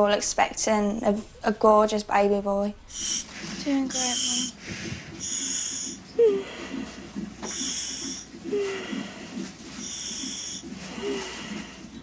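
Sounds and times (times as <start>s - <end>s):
gas valve hissing: 2.9s - 6.0s, 6.8s - 8.3s, 9.8s - 10.7s
woman breathing: 4.5s - 12.0s.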